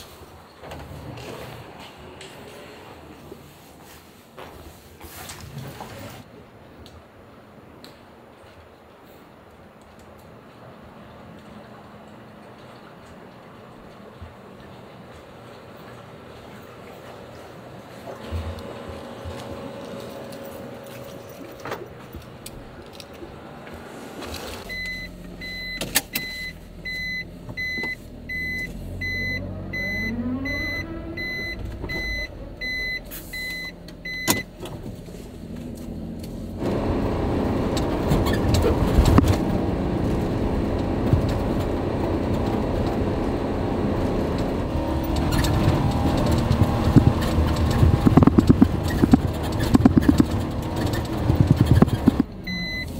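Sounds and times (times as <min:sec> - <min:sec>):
truck running noise: 0:11.2 - 0:52.9
electronic warning beeps: 0:24.6 - 0:34.5, 0:52.5 - 0:52.9.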